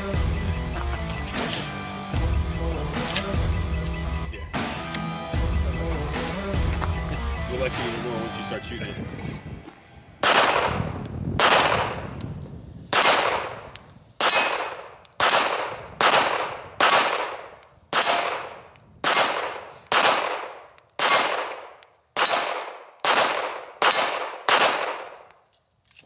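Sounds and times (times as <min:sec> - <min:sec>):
pistol shots: 0:10.2 - 0:12.2, 0:12.9 - 0:25.3.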